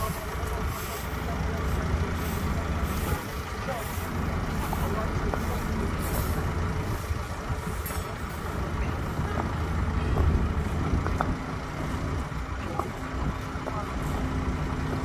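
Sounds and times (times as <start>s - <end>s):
diesel engine running: 0.0s - 15.0s
paving stones clacking: 7.7s - 14.2s.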